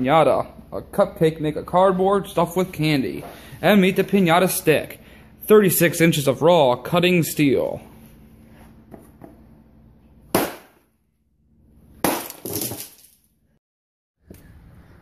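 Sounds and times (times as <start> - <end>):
stick smashing cardboard pinata: 10.3 - 10.8, 12.0 - 13.2.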